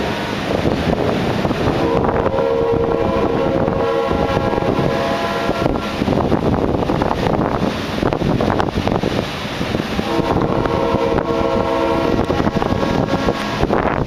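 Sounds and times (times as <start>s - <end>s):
wind noise on microphone: 0.0s - 14.0s
train horn blast: 1.8s - 6.2s, 10.0s - 14.0s.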